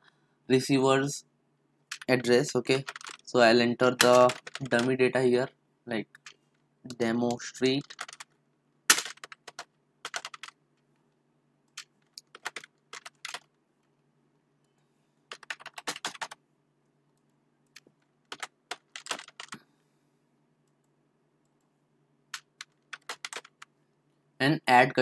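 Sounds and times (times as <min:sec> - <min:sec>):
typing on computer keyboard: 0:01.9 - 0:03.3, 0:04.0 - 0:05.0, 0:07.3 - 0:08.3, 0:08.9 - 0:10.6, 0:11.7 - 0:13.5, 0:15.3 - 0:16.4, 0:17.7 - 0:19.6, 0:22.3 - 0:23.7.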